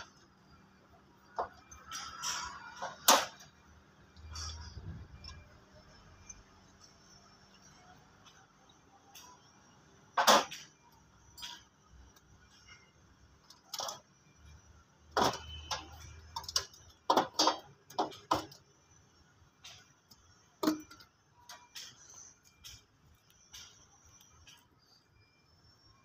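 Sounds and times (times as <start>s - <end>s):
metal tool clicks and knocks: 20.6s - 22.0s.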